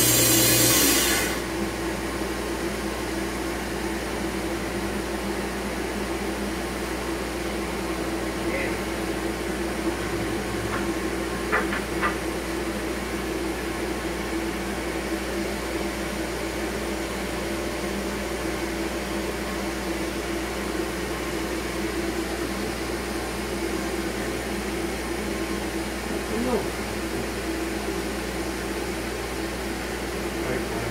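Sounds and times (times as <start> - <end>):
dust collector humming: 0.0 - 30.9.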